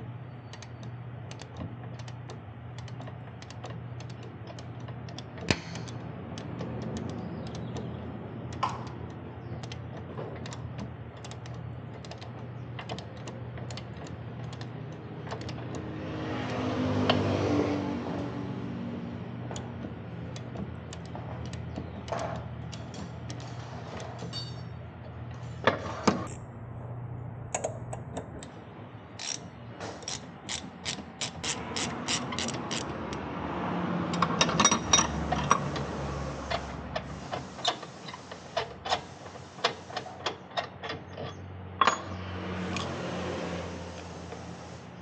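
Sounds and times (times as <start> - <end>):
steady low hum: 0.0 - 33.4
ratchet wrench clicking: 0.5 - 17.2, 29.2 - 33.3
metal tools clinking: 21.1 - 24.8, 40.6 - 42.9.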